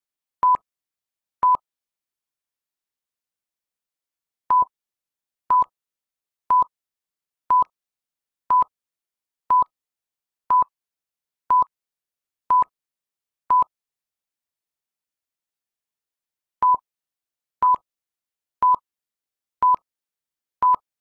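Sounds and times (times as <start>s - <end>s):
short electronic beeps: 8.5s - 8.7s.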